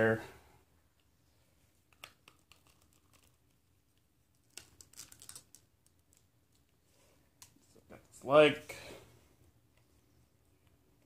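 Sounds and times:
hard plastic pieces clicking: 4.3s - 6.7s.

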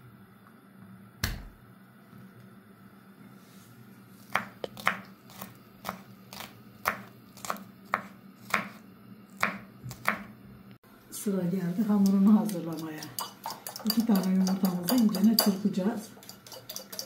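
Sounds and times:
knife chopping on cutting board: 4.3s - 8.8s, 9.4s - 10.3s.

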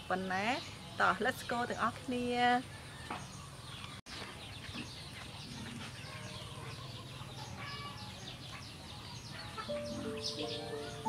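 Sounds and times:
birds chirping: 0.0s - 11.0s
chickens clucking: 4.7s - 11.0s
background music with held notes: 9.7s - 11.0s.

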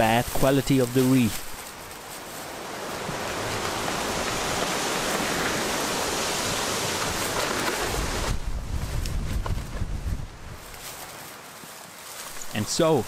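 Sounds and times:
steady hiss: 10.6s - 13.0s.

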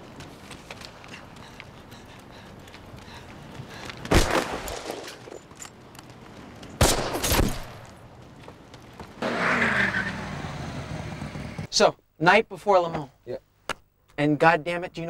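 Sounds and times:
rifle shots with echo: 4.1s - 5.1s, 6.8s - 7.8s.

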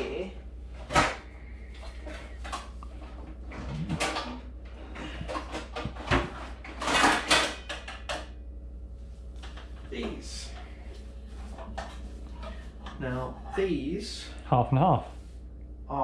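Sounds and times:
steady low hum: 0.0s - 16.0s
knocks and clatters in cupboard: 5.0s - 8.3s.

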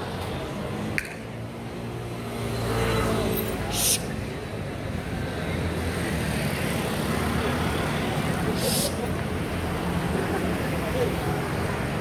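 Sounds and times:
murmur of crowd voices: 3.0s - 12.0s.

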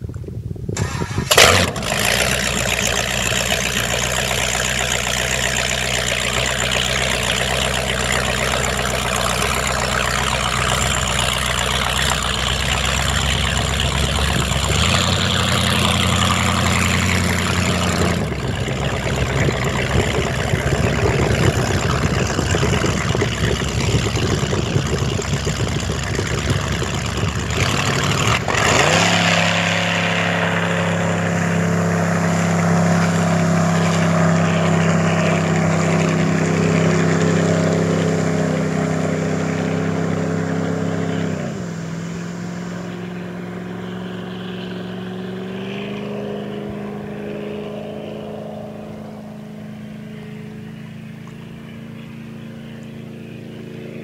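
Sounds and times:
rushing water and air: 0.7s - 49.4s
speedboat engine running: 1.2s - 54.0s.

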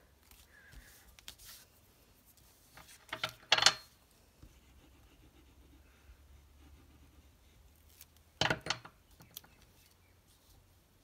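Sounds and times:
paper rustling: 0.2s - 3.2s.

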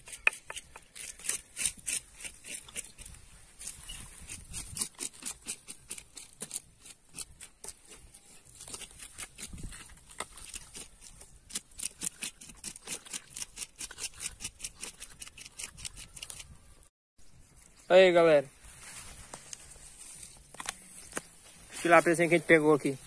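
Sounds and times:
knife scraping fish scales: 0.0s - 7.8s, 8.6s - 16.5s.

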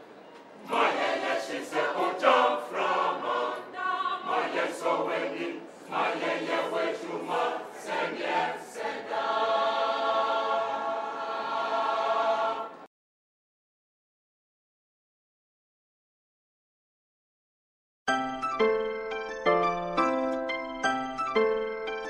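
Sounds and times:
mixed choir singing: 0.6s - 12.9s.

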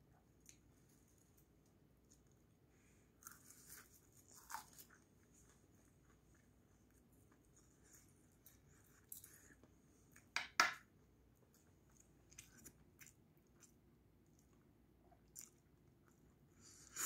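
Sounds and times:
faint chewing: 0.3s - 10.4s, 11.3s - 17.0s
small crisp crunches: 3.2s - 5.6s.

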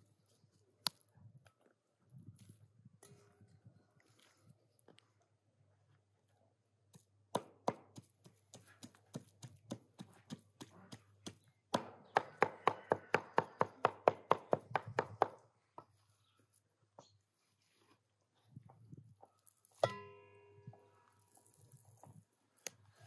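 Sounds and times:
cleaver chopping meat on wood: 7.3s - 15.4s.

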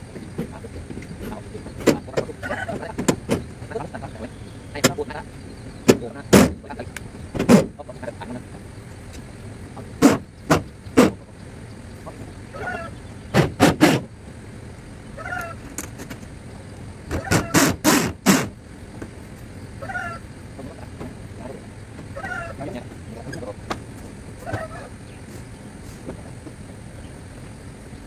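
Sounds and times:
knocks on corrugated metal roofing: 5.8s - 7.8s, 10.0s - 11.2s, 13.3s - 14.1s, 17.1s - 18.5s.

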